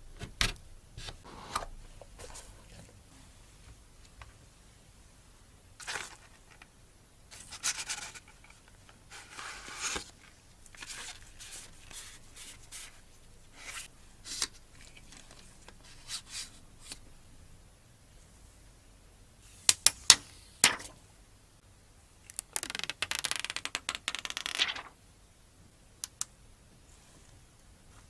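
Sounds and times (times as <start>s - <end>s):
paper leaflets rustling: 24.4s - 24.9s.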